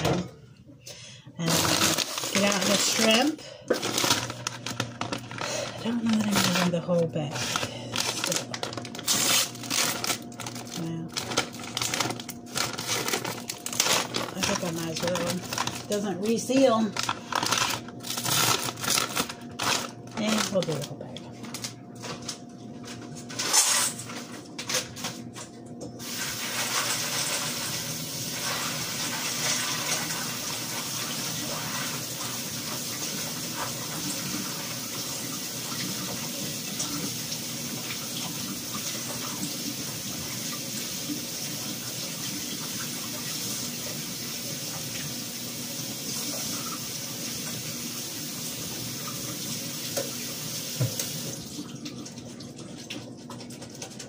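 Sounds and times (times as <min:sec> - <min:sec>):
faucet running into sink: 0:26.0 - 0:54.0.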